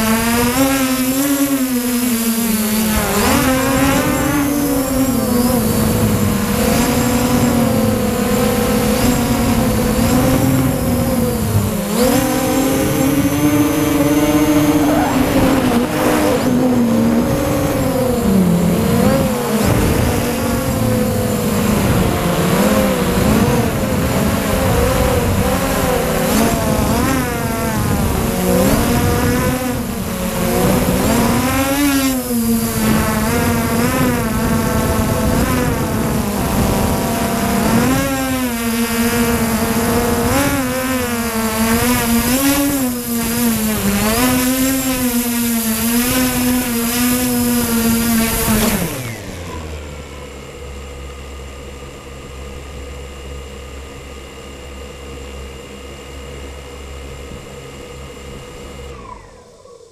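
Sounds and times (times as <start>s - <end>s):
drone propellers buzzing: 0.0s - 59.9s.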